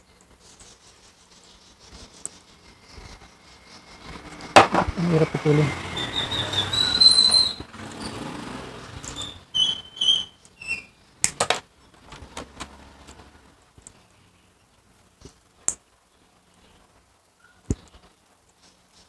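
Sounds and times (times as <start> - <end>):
plastic sleeves squeaking: 4.0 - 8.2, 9.0 - 11.0.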